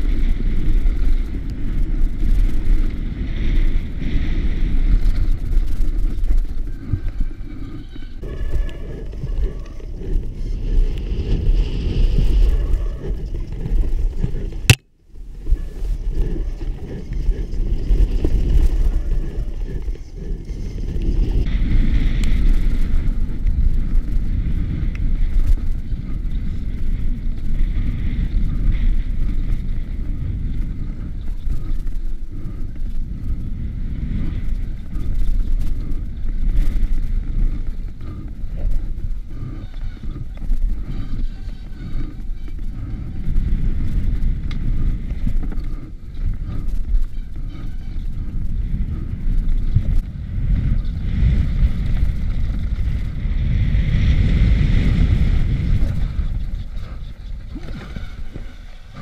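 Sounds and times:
bike rumble and rattle on trail: 0.0 - 59.0
wind buffeting microphone: 0.0 - 59.0.

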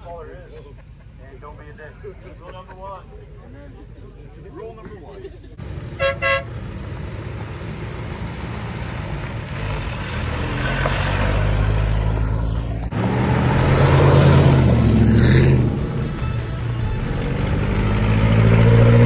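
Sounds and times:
car engine accelerating: 5.6 - 19.0.

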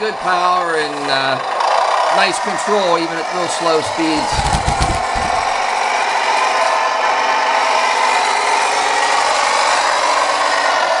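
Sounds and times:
electric drive motor: 0.0 - 6.7
toy truck diesel engine sound: 0.0 - 11.0.

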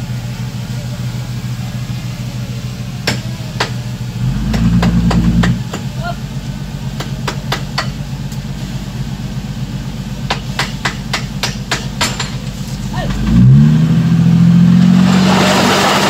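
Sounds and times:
heavy diesel engine revving: 0.0 - 16.0
sharp knocks: 4.4 - 6.0, 7.0 - 8.0, 10.3 - 13.3.

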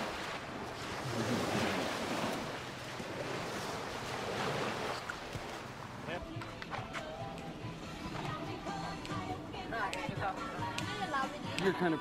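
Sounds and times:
small surf washing on beach: 0.0 - 6.0.

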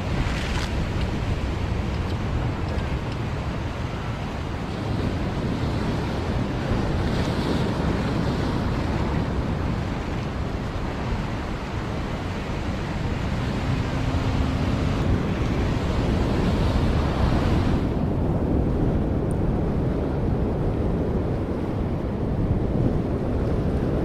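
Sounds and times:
ocean surf breaking on rocks: 0.0 - 18.8
wind rumbling on microphone: 0.0 - 24.0.

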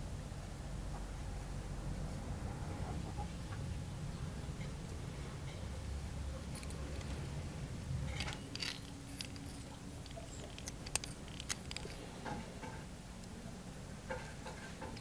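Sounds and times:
small handling clicks: 8.1 - 13.4.

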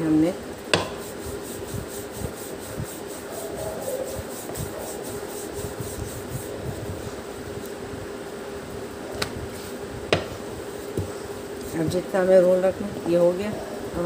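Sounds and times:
rolling pin rubbing on dough: 0.8 - 7.3, 9.5 - 12.3.

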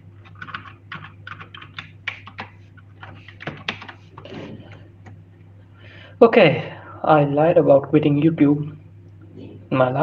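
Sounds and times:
steady low hum: 0.0 - 10.0
typing on computer keyboard: 0.2 - 4.0.

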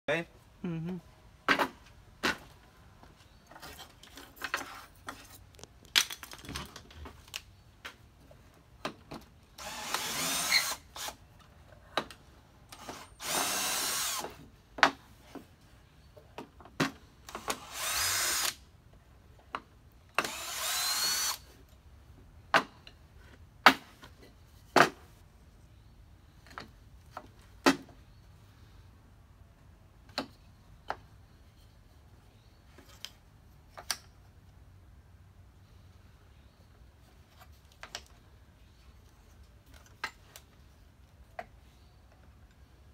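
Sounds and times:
cordless drill running: 9.6 - 11.2, 12.8 - 14.3, 17.6 - 18.6, 20.2 - 21.4.

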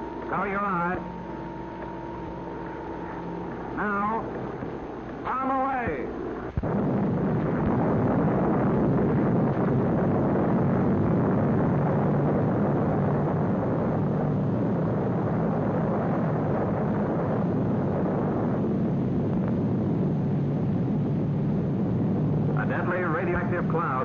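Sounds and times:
rumbling roar of bomb blast: 6.6 - 17.3.

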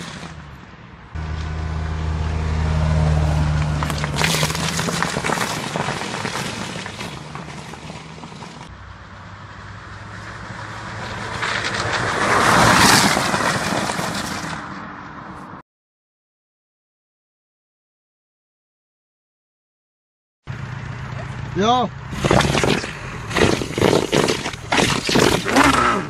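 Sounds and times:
car engine driving by: 0.0 - 15.6, 20.5 - 26.0
tyre noise: 3.4 - 8.7, 22.1 - 26.0.

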